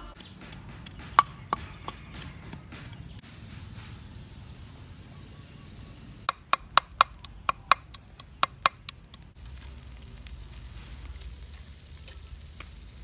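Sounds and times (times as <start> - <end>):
knife chopping on wooden board: 0.2 - 3.9
fish grilling over charcoal: 6.4 - 13.0.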